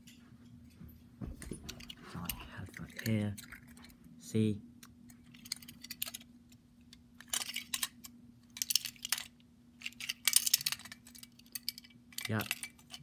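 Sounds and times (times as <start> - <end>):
faint steady hum: 0.0 - 13.0
toy cars clicking together: 7.2 - 13.0.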